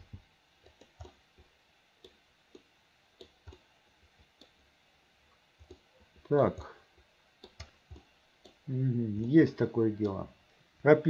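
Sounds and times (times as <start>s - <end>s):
computer mouse and keyboard clicks: 0.6s - 3.6s, 5.6s - 6.7s, 7.4s - 8.6s.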